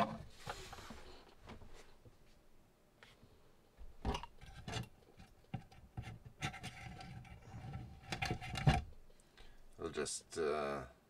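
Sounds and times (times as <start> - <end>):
plastic parts knocking and clicking: 7.9 - 9.1.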